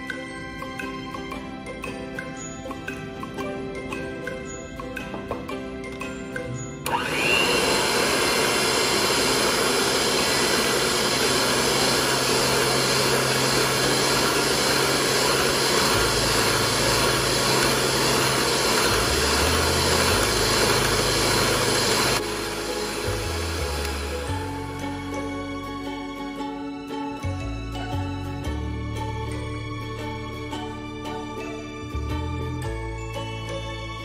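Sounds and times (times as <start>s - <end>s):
electric hand mixer running: 6.8s - 26.6s.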